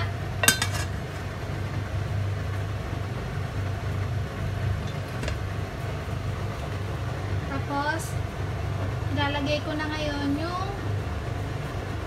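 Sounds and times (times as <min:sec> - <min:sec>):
kitchen appliance humming: 0:00.0 - 0:12.0.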